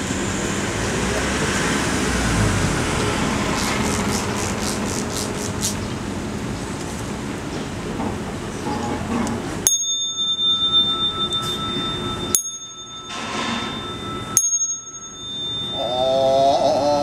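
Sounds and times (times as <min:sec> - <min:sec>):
small bowl bell ringing: 0:09.6 - 0:17.0.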